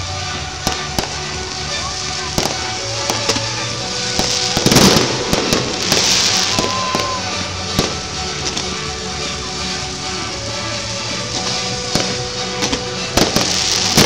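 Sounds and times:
background music: 0:00.0 - 0:14.0
fireworks bangs: 0:00.2 - 0:14.0.

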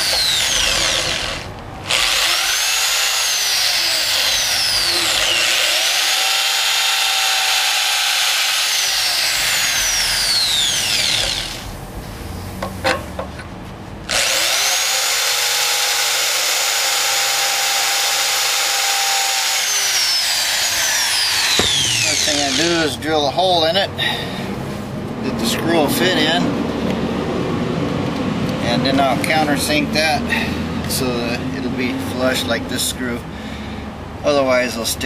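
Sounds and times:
drill clicks: 0:00.0 - 0:11.7, 0:14.1 - 0:22.7
electric drill whining: 0:00.0 - 0:11.7, 0:14.1 - 0:22.8.

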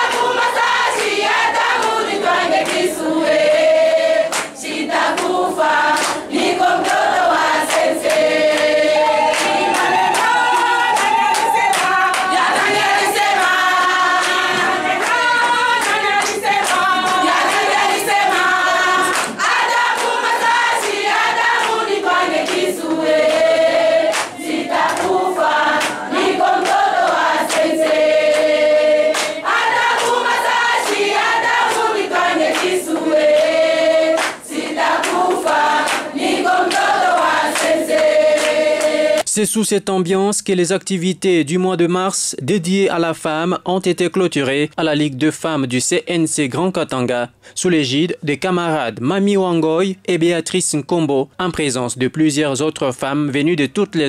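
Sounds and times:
hands clapping: 0:00.0 - 0:03.0, 0:04.2 - 0:39.3
women singing in chorus: 0:00.0 - 0:39.3.

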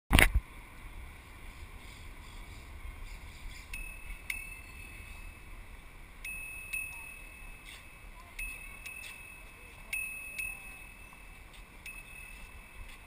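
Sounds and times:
wind rumble: 0:00.2 - 0:13.0
bicycle rolling noise: 0:00.4 - 0:13.0
bicycle bell ringing: 0:03.6 - 0:05.6, 0:06.2 - 0:13.0.

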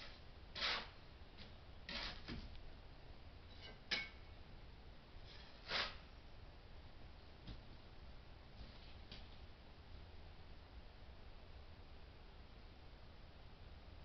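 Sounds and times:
short scrapes: 0:00.0 - 0:01.0, 0:01.9 - 0:02.4, 0:05.2 - 0:06.0.

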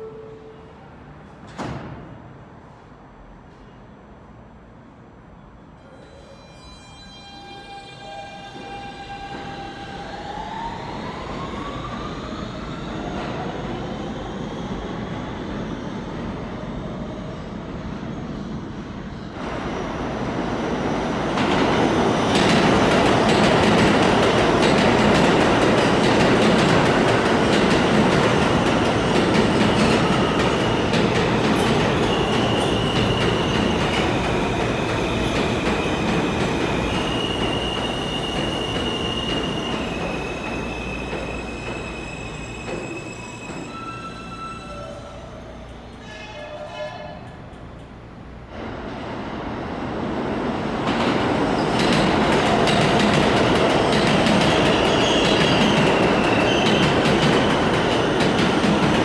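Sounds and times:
subway train motors whining: 0:00.0 - 0:59.0
train wheels rumbling on rail: 0:11.4 - 0:59.0
high squeals: 0:36.8 - 0:47.2.

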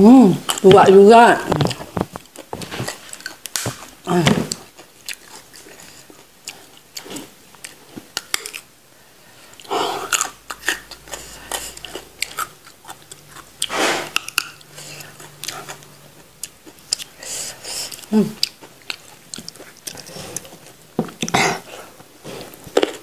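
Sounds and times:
crunchy biting and chewing: 0:01.6 - 0:08.7, 0:09.4 - 0:23.0
wet mouth clicks: 0:10.1 - 0:17.2.

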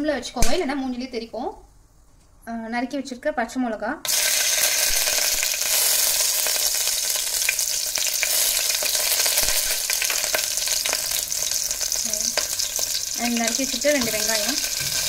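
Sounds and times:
oil popping and crackling: 0:04.1 - 0:15.0
spices sizzling in oil: 0:04.1 - 0:15.0.

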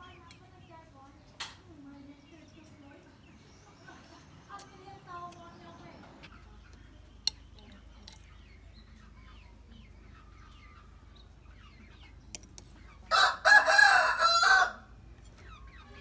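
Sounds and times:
rooster crowing: 0:13.1 - 0:14.9.

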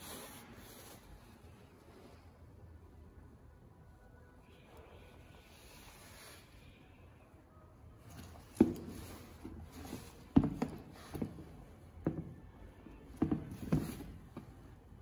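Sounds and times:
sneakers knocking on cardboard box: 0:09.9 - 0:12.4, 0:13.2 - 0:14.5.

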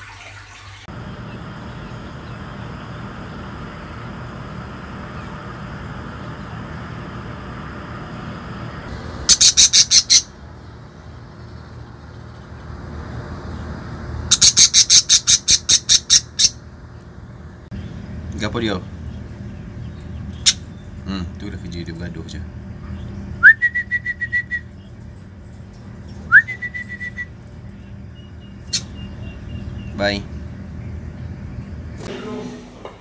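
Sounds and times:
low background rumble: 0:00.9 - 0:33.0
bird calling harsh high notes: 0:09.2 - 0:10.4, 0:14.3 - 0:16.6.

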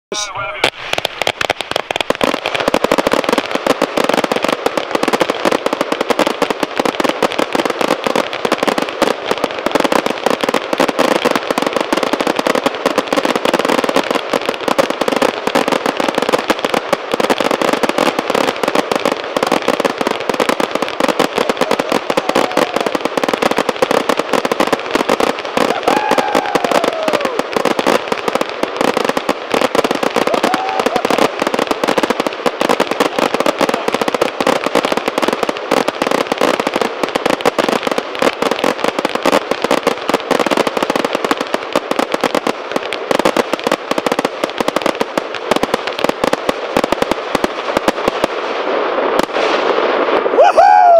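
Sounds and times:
fireworks crackling: 0:00.1 - 0:50.9
gliding firework tones: 0:20.9 - 0:28.5.

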